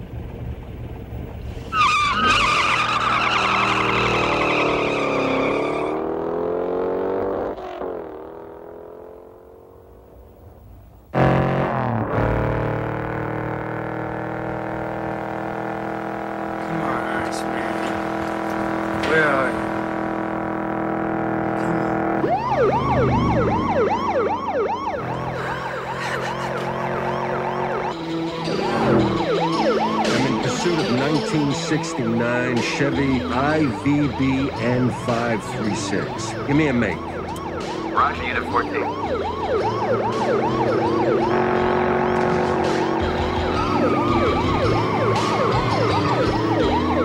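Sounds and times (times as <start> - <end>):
car engines running hard: 0.0 - 47.0
police siren yelping: 1.7 - 6.1, 21.1 - 47.0.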